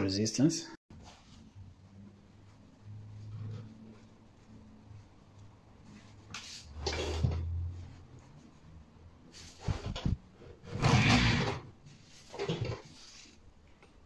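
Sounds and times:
cloth rubbing and rotor spinning: 0.9s - 13.4s.

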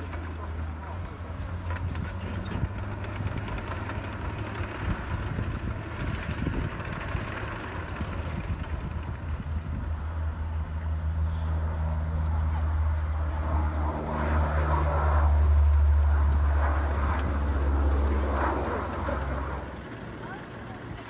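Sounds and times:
distant turboprop engines droning: 0.0s - 21.0s.

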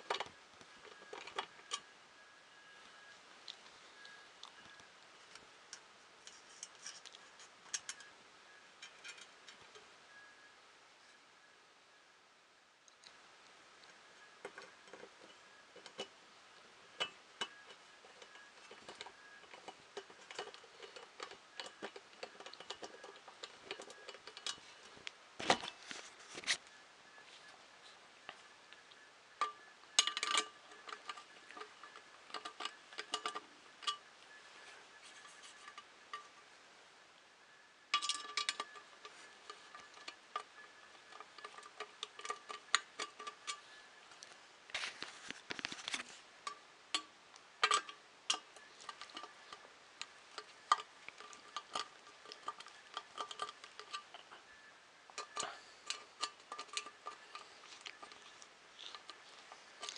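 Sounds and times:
metal screws clicking and clinking: 29.4s - 34.0s, 37.9s - 44.2s, 45.6s - 54.3s.

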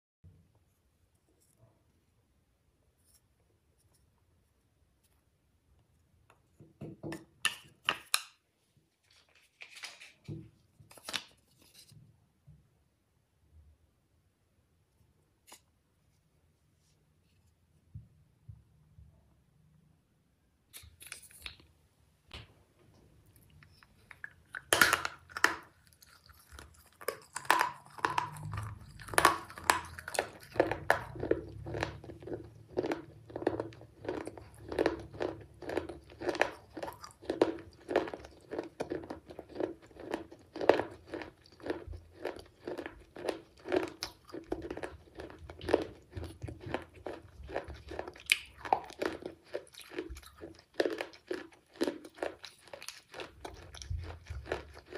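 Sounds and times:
crunching chewing of brittle shards: 23.3s - 54.9s.

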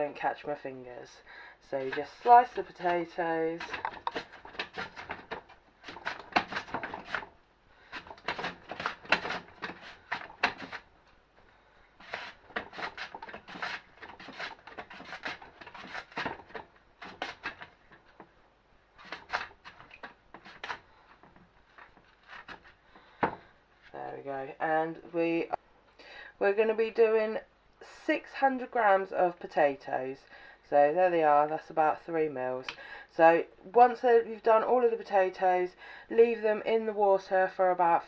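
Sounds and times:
potato scraping across slicer blade: 1.6s - 10.9s, 12.0s - 18.2s, 18.9s - 22.8s.

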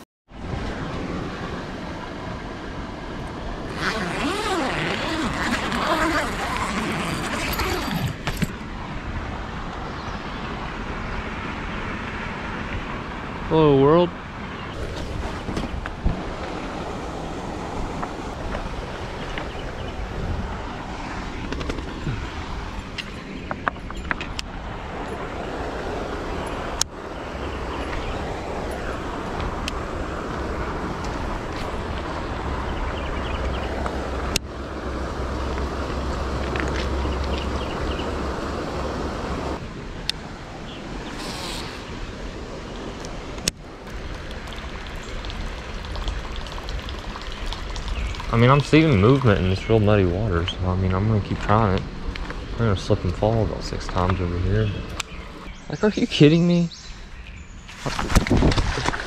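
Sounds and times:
wind rumble on microphone: 0.0s - 55.8s, 56.8s - 59.0s
river water rushing: 0.4s - 9.7s, 10.5s - 50.2s
tent fabric rustling: 3.6s - 8.6s, 57.7s - 59.0s.

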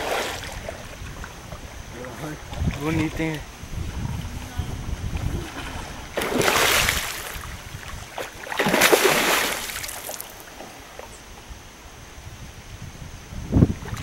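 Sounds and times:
fish splashing in water: 5.1s - 10.6s.

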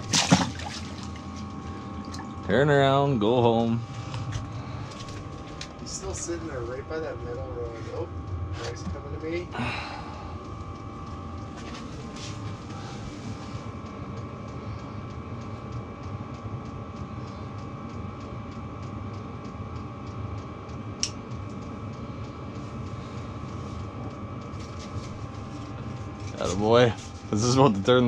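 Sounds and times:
faint whine: 0.0s - 28.0s
mechanical hum: 0.0s - 28.0s.

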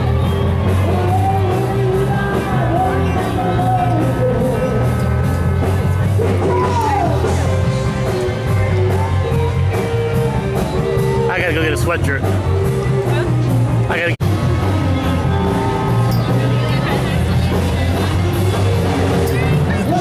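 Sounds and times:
live rock band playing: 0.0s - 20.0s
person singing: 0.6s - 5.2s.

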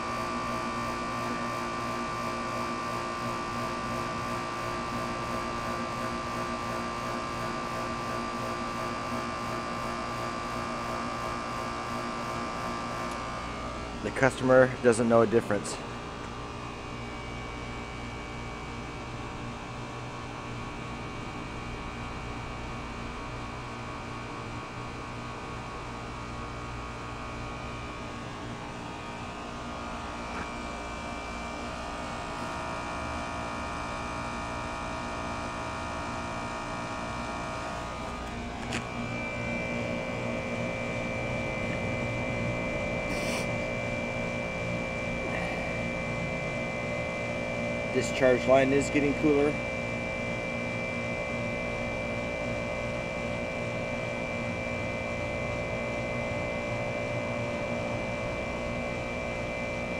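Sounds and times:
compressor humming: 0.0s - 59.9s.

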